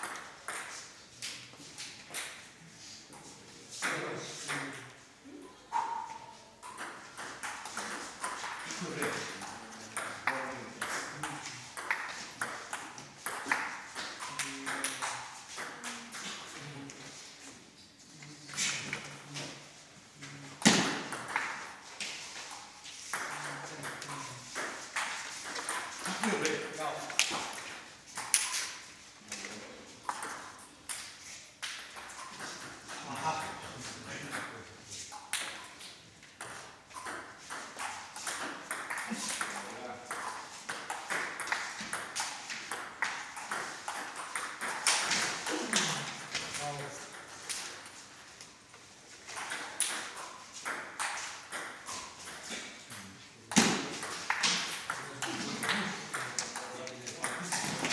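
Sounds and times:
table tennis balls clicking: 6.6s - 16.5s, 35.2s - 48.5s, 53.5s - 57.9s.

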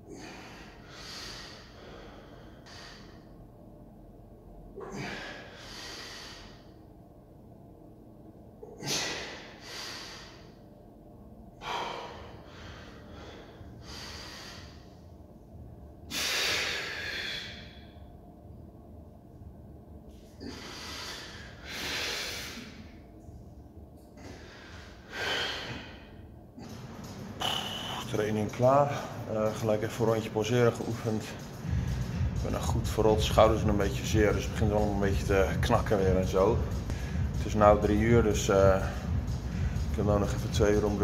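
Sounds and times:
man breathing hard: 0.0s - 3.5s, 4.8s - 6.9s, 8.6s - 10.7s, 11.6s - 15.2s, 16.0s - 18.0s, 20.2s - 23.0s, 24.0s - 28.1s, 31.5s - 32.4s, 36.7s - 37.4s, 38.6s - 39.9s.

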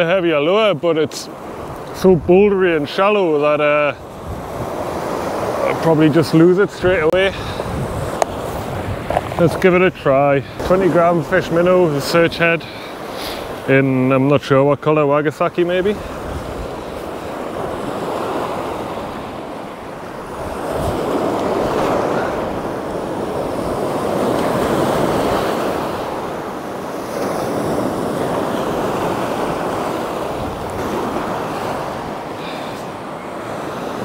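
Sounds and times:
waves washing on rocky shore: 0.0s - 34.0s
wind buffeting microphone: 1.5s - 2.9s, 4.0s - 12.7s, 15.8s - 33.8s.

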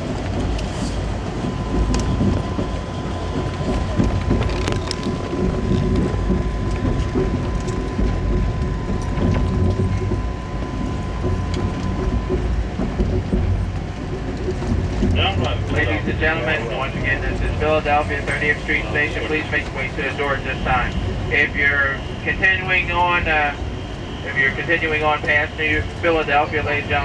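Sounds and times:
thin steady whine: 0.0s - 27.0s
train wheels rumbling on rails: 0.0s - 27.0s
track clicks and knocks: 0.1s - 27.0s.

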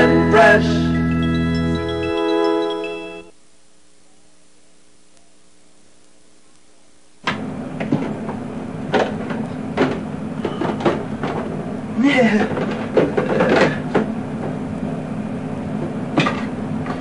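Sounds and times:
faint background hiss: 0.0s - 7.4s
room hum: 0.0s - 17.0s.

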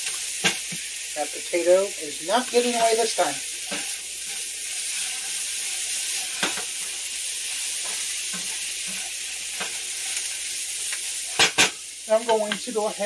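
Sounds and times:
vegetables sizzling: 0.0s - 13.0s.

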